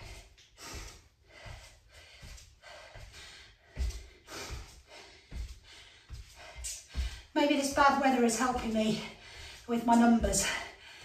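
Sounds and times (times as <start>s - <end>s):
woman breathing hard: 0.0s - 7.4s, 9.0s - 9.7s, 10.4s - 11.0s.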